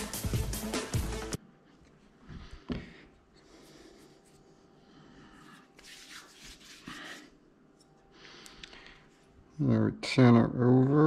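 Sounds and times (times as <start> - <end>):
soft rubbing and rustling: 5.4 - 8.0.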